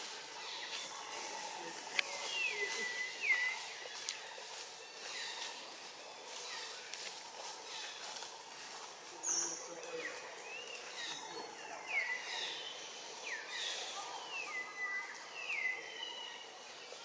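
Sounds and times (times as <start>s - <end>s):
high whistled bird calls: 2.1s - 3.8s.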